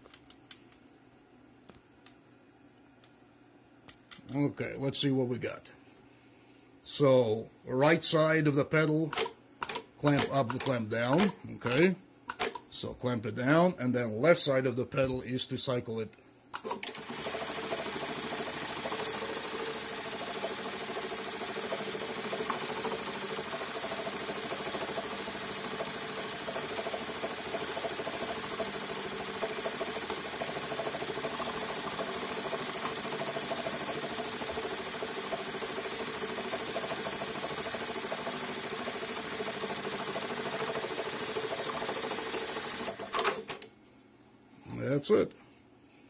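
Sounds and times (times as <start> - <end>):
sewing machine rapid clatter: 16.7 - 43.6.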